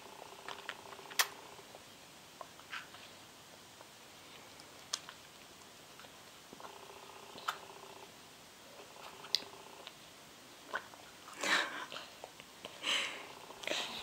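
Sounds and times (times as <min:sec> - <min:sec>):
child chewing: 0:00.4 - 0:07.7, 0:08.7 - 0:10.0, 0:10.6 - 0:14.0.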